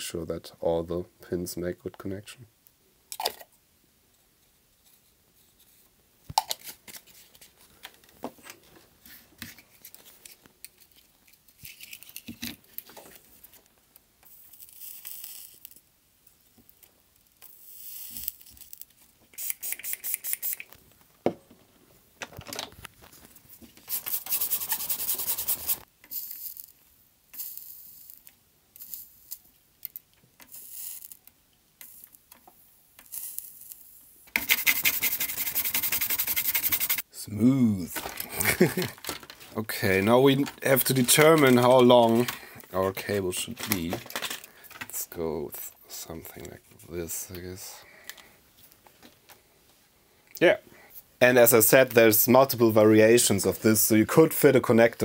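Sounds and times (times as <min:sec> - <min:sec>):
small clicks and handling noises: 0:06.3 - 0:14.4, 0:27.3 - 0:33.2, 0:38.0 - 0:39.6, 0:43.5 - 0:45.0
solder hissing and crackling: 0:11.5 - 0:21.1, 0:23.0 - 0:37.3.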